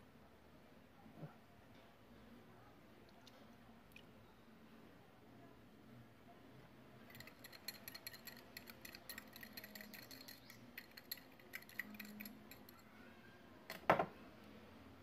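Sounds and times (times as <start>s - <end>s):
whisk knocking in a bowl: 7.1s - 12.7s.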